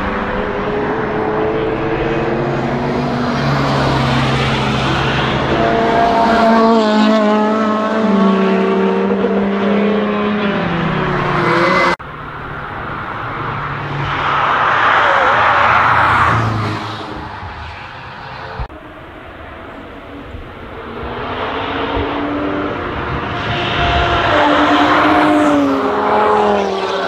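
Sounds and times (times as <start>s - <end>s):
race car engines revving: 0.0s - 27.0s
car passing by: 12.8s - 18.7s, 20.8s - 27.0s.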